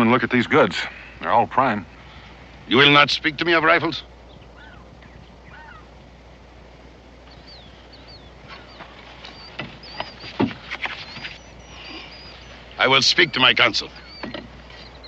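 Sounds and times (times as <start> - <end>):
birds chirping faintly: 0.0 - 15.0
knocks and rustles of goods: 8.5 - 11.5.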